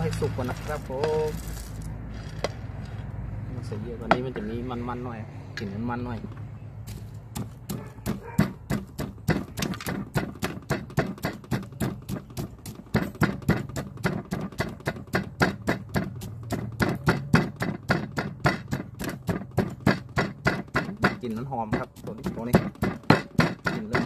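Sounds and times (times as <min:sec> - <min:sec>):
rapid knocking on hard surface: 0:07.3 - 0:24.0.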